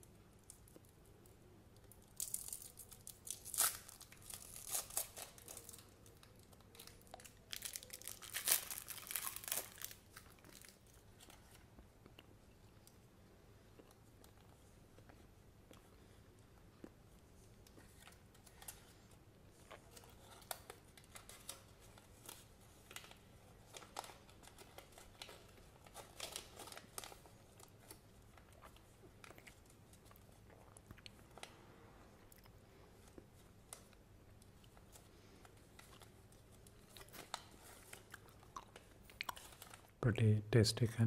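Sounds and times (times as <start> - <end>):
paper rustling and crinkling: 2.2 - 11.7, 17.8 - 28.9.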